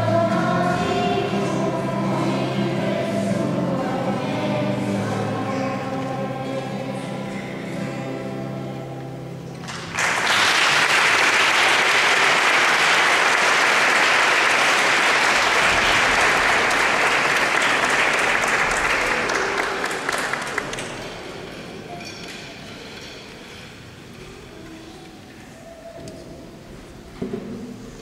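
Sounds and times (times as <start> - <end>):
children's choir singing: 0.0 - 8.6, 11.5 - 26.3
audience applause: 9.6 - 21.5.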